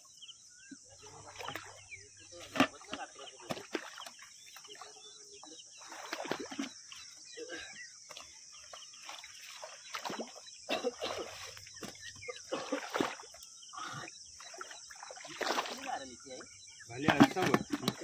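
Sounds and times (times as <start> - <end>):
fish splashing in water: 2.6 - 7.0, 9.0 - 18.0.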